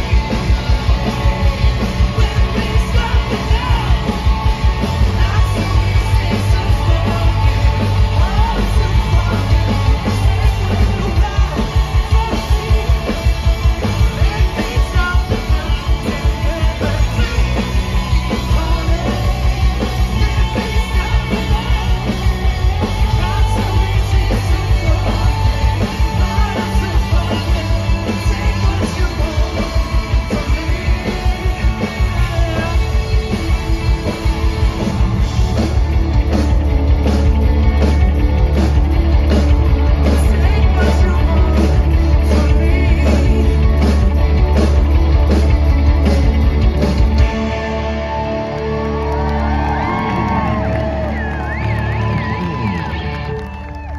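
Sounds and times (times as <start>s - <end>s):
sung vocals: 0.0s - 35.4s, 39.9s - 44.8s
drums keeping a steady beat: 0.0s - 53.9s
electric guitars and bass: 0.0s - 53.9s.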